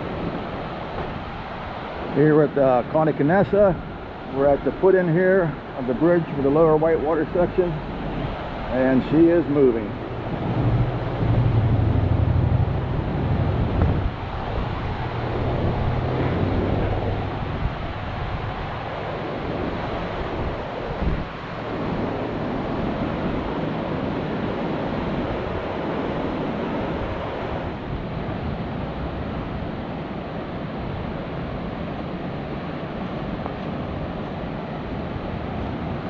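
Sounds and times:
floodwater rushing in creek: 0.0s - 36.0s
low hum: 9.8s - 17.6s.

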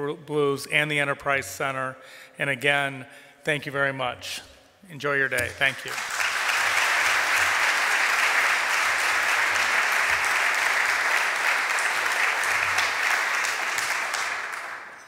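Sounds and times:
audience applause: 5.7s - 15.0s.

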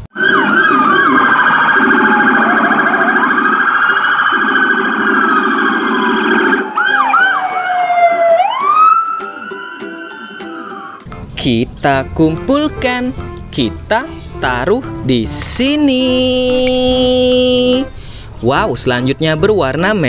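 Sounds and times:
fast warbling siren: 0.1s - 11.0s
slow siren wail: 0.1s - 11.0s.

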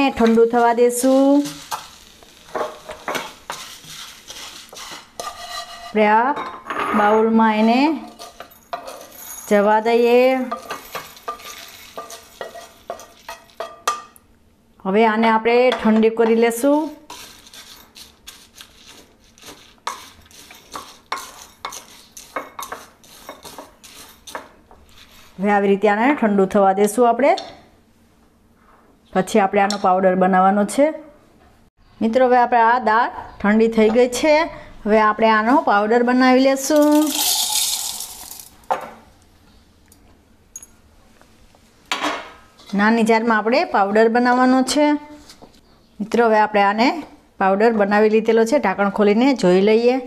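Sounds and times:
dry lentils rattling in glass bowl: 36.7s - 38.6s
grains poured into steel jar: 36.7s - 38.6s.

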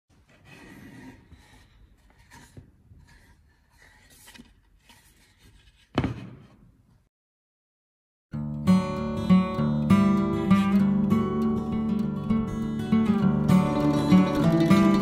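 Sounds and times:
hand tools scraping wood: 0.2s - 5.9s.

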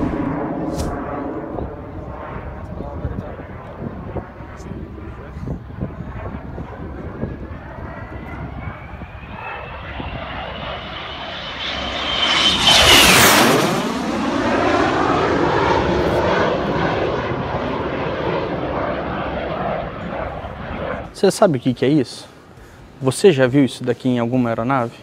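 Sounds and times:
jet flying past: 0.0s - 21.4s.

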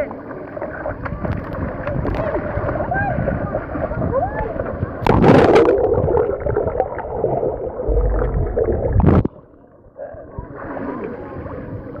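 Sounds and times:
muffled underwater bubbling: 0.8s - 11.5s
water splash: 5.0s - 9.4s.

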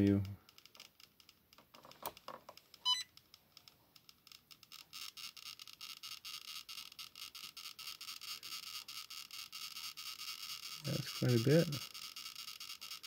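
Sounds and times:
emf meter crackling clicks: 0.0s - 13.0s
short beep: 2.8s - 3.1s.

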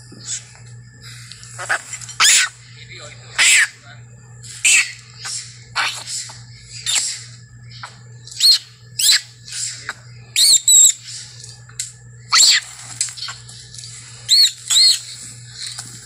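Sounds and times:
monkey screaming: 1.6s - 2.6s, 3.4s - 3.8s, 4.6s - 6.2s, 6.8s - 9.4s, 10.4s - 11.0s, 12.3s - 13.4s, 14.3s - 15.2s.

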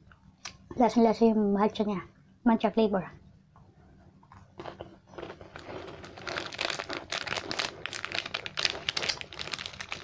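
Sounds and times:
plastic wrapper crinkling: 4.6s - 10.0s.

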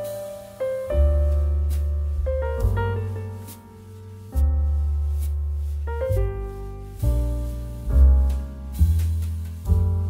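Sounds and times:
piano chords with deep bass: 0.0s - 10.0s.

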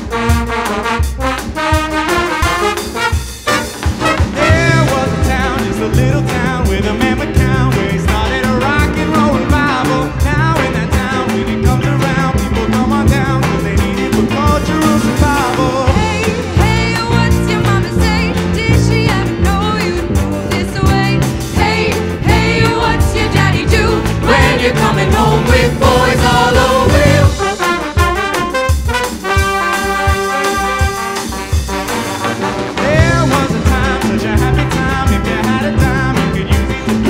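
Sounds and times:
live rock and roll band: 0.0s - 37.0s
man and woman singing: 4.4s - 27.6s, 32.8s - 37.0s.

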